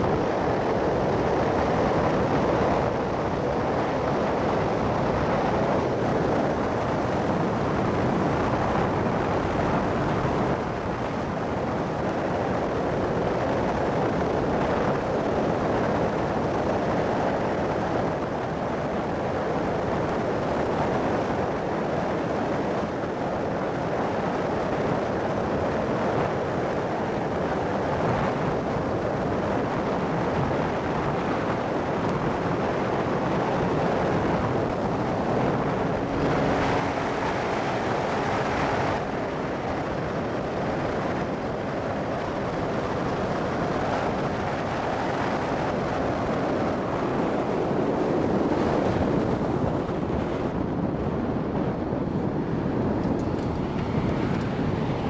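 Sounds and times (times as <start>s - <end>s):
wind rush on microphone: 0.0s - 55.0s
motorcycle engine: 35.4s - 39.1s.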